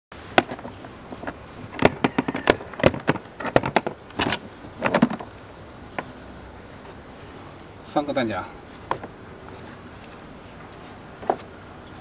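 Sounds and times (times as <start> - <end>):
case being handled: 0.3 - 5.4.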